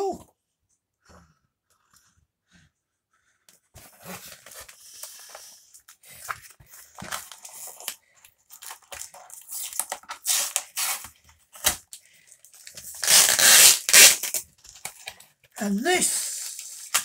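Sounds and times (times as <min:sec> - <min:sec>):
cardboard tearing and crunching: 0:06.0 - 0:12.0, 0:12.6 - 0:15.1.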